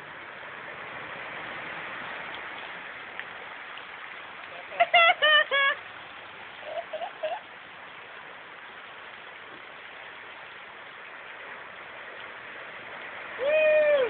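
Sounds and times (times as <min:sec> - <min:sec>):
rain hissing on flooded street: 0:00.0 - 0:14.0.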